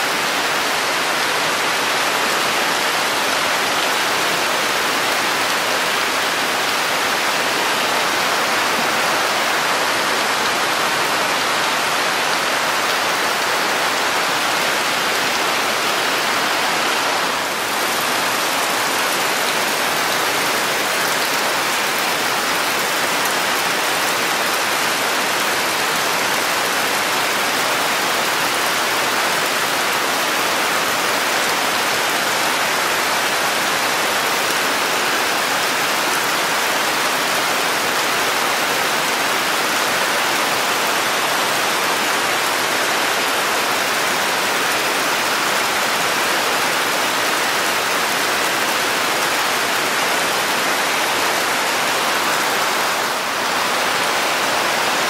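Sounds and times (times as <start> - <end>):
rain on foliage: 0.0 - 55.0.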